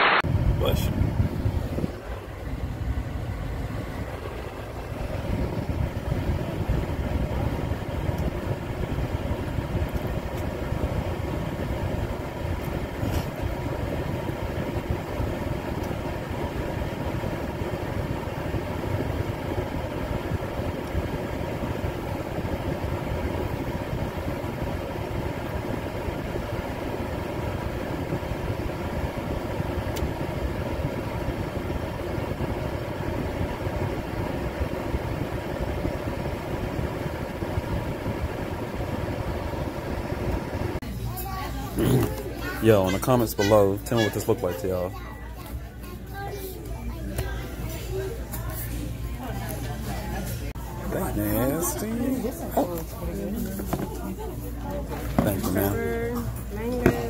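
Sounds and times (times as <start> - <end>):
car engine rumble inside cabin: 0.3 - 40.8.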